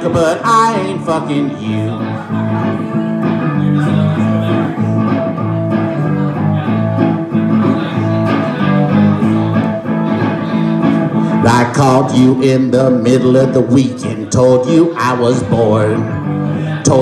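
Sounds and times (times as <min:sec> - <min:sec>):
electric guitar strumming chords: 0:00.0 - 0:17.0.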